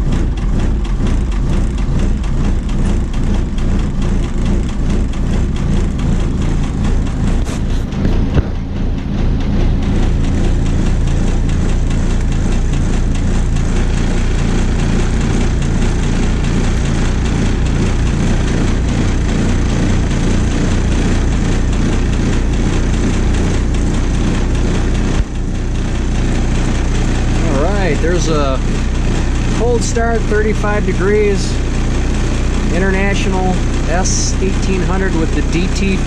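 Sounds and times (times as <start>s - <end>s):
diesel engine idling: 0.0s - 36.0s
engine knock: 0.0s - 36.0s.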